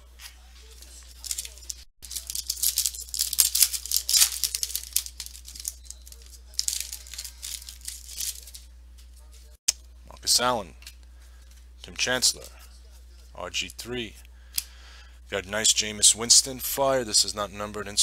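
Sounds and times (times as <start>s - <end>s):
steady low hum: 0.0s - 17.9s
foil wrapper crinkling and tearing: 1.1s - 8.6s.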